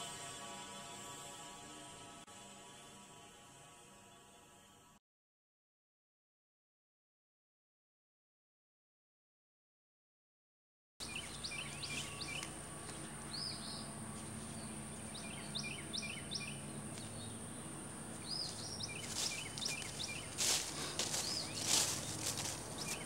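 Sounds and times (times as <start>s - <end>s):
high insect-like drone: 0.0s - 5.0s, 11.0s - 23.0s
noisy strokes: 0.0s - 5.0s, 11.0s - 23.0s
low hum: 11.0s - 23.0s
songbirds chirping: 11.0s - 23.0s.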